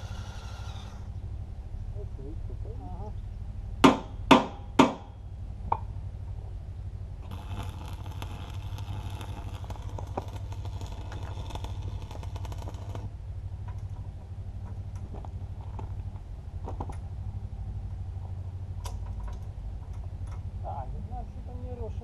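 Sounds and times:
arc welder crackling: 0:00.0 - 0:01.2, 0:07.2 - 0:17.1
steady low hum: 0:00.0 - 0:22.0
knocks on metal: 0:03.8 - 0:05.1.

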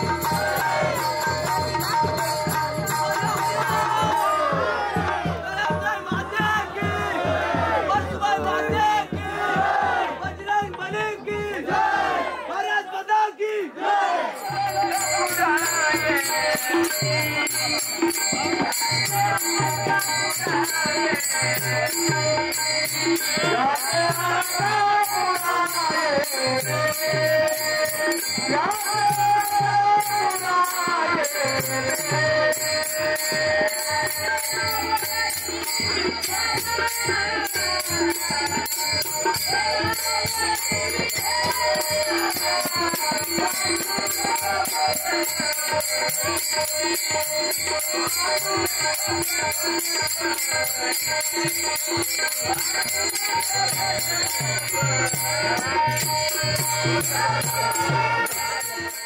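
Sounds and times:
drum beat: 0:00.0 - 0:12.0, 0:14.5 - 0:59.0
voices singing: 0:00.0 - 0:59.0
small hand cymbals: 0:14.4 - 0:59.0.

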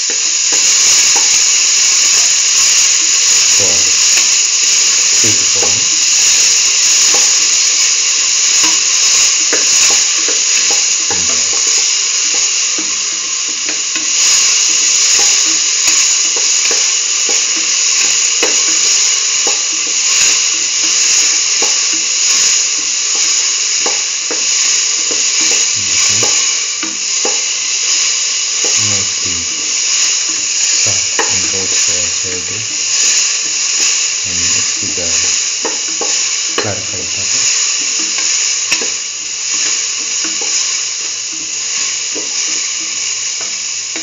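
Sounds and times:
vegetables sizzling in a pan: 0:00.0 - 0:44.0.

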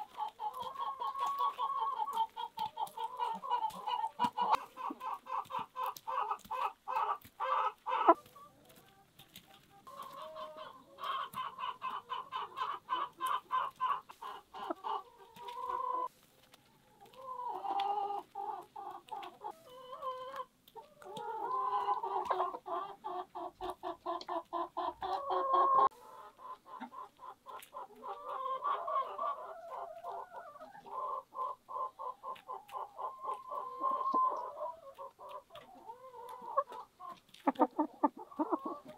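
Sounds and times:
hens clucking: 0:00.0 - 0:38.9.

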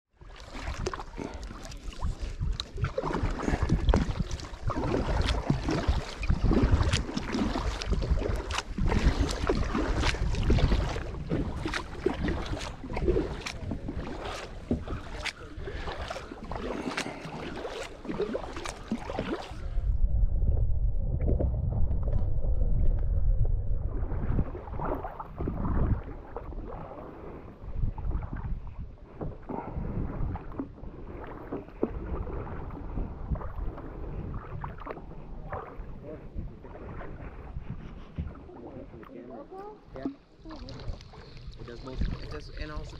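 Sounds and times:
paddle splashing in water: 0:00.1 - 0:19.9, 0:23.8 - 0:42.9
wind on microphone: 0:00.6 - 0:42.9
muffled low rumble: 0:19.5 - 0:26.8.

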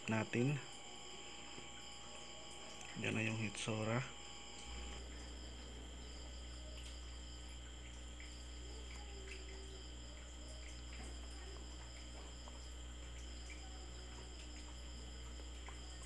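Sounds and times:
high-pitched whines: 0:00.0 - 0:05.2
low electrical hum: 0:00.0 - 0:16.0
faint ticks: 0:06.4 - 0:16.0.

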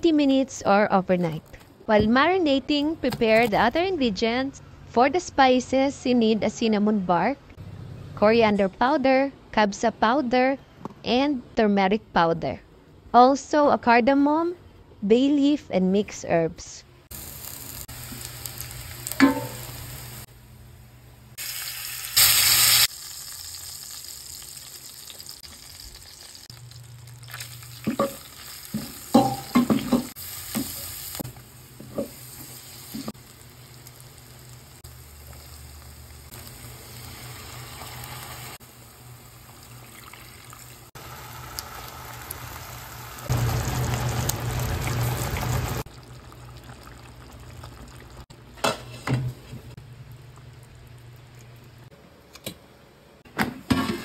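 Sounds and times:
food sizzling in a pot: 0:17.1 - 0:20.3, 0:21.3 - 0:48.1
spoon knocking against pot: 0:28.8 - 0:30.7.

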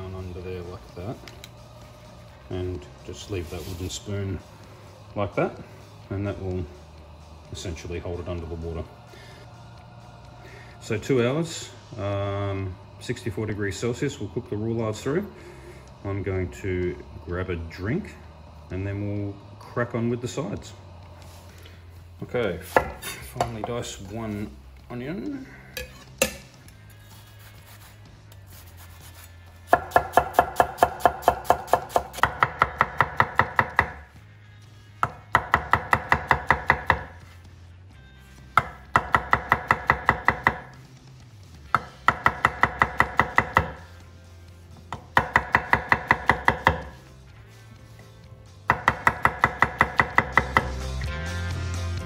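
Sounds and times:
knife chopping on wooden board: 0:29.7 - 0:34.0, 0:35.0 - 0:37.2, 0:38.6 - 0:40.7, 0:41.7 - 0:43.8, 0:44.9 - 0:47.0, 0:48.7 - 0:50.7.

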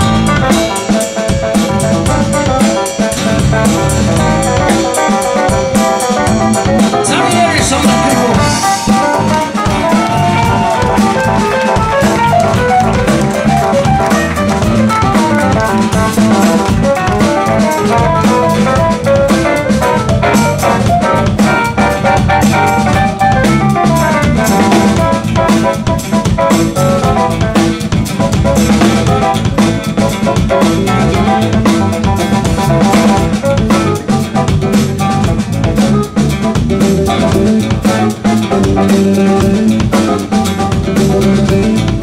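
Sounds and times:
bass: 0:00.0 - 0:42.0
drum kit beat: 0:00.0 - 0:42.0
electric guitar lead: 0:00.0 - 0:42.0.

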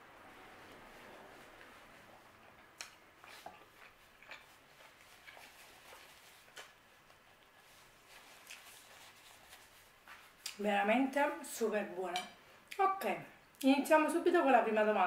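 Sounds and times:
person chewing: 0:02.4 - 0:09.4
paper napkin rustling: 0:04.7 - 0:10.4.

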